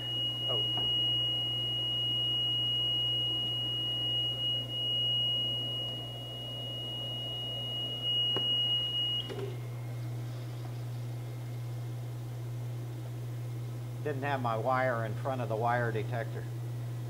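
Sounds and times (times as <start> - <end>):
high-pitched machine warning tone: 0.0 - 9.7
low steady hum: 0.0 - 17.0.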